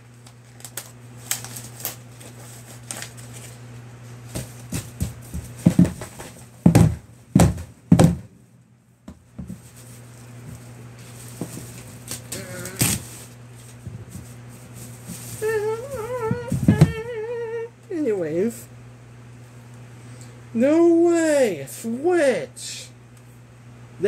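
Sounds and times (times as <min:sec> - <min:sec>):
low electrical hum: 0:00.0 - 0:24.0
packaging rustling: 0:00.2 - 0:03.6, 0:09.6 - 0:16.8
loud thumps: 0:05.6 - 0:08.4.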